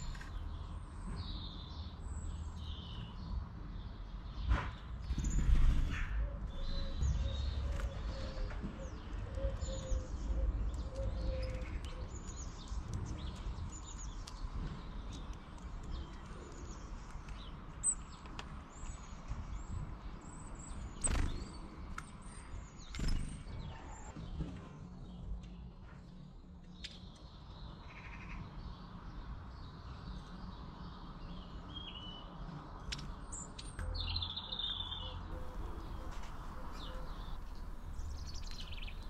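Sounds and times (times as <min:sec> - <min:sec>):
songbirds chirping: 0:00.0 - 0:39.0
low rumble: 0:35.4 - 0:39.0.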